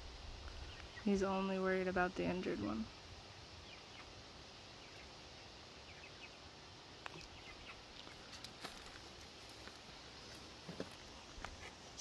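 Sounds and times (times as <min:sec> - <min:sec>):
faint bird chirps: 0:03.2 - 0:08.4.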